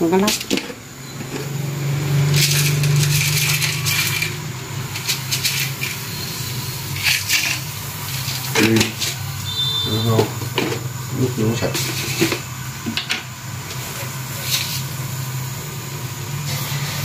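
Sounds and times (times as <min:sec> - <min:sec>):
metal pots clattering: 0:02.3 - 0:06.1, 0:06.9 - 0:09.2, 0:10.2 - 0:10.9, 0:11.7 - 0:13.3.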